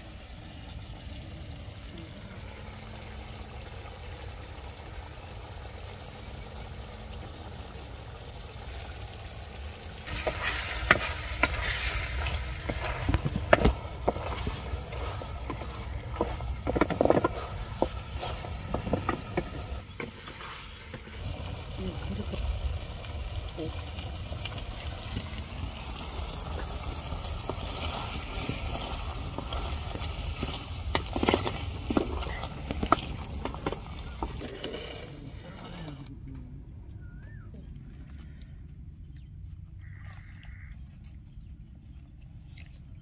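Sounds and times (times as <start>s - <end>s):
food sizzling in a pan: 0.0s - 34.4s
wooden spatula scraping metal pan: 10.1s - 21.2s.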